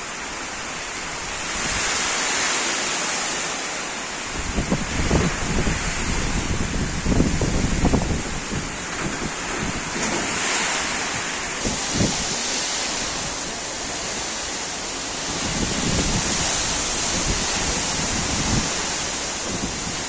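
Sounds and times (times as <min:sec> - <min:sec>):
heavy rain pouring: 0:00.0 - 0:20.0
wind buffeting microphone: 0:04.3 - 0:20.0.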